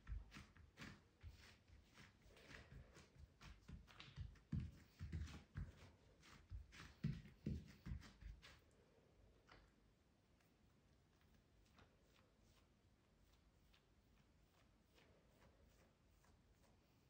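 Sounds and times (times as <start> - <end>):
hands patting bread dough: 0.0 - 8.6
skin scuffing on dough: 0.0 - 8.6.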